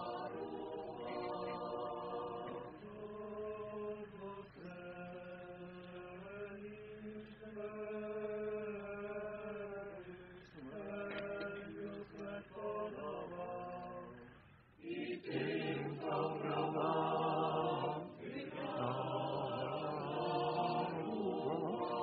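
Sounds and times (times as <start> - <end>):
group of voices chanting: 10.0 - 22.0.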